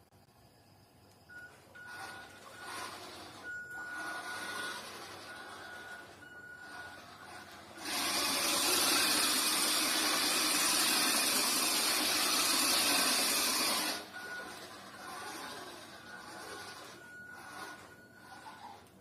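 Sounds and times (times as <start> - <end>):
faint high beep: 0.6 - 2.3
toy car motor whirring: 1.7 - 19.0.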